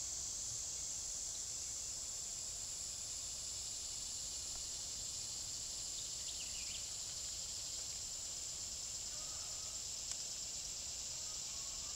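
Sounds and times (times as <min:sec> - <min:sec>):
insect chorus drone: 0:00.0 - 0:11.9
faint click: 0:10.0 - 0:10.3.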